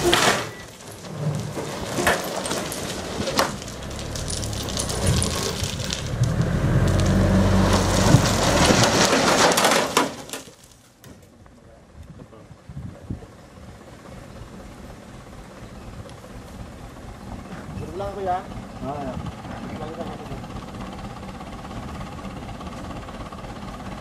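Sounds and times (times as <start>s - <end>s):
crushed stone pouring and rattling: 0.0s - 10.9s
truck engine running: 0.0s - 24.0s.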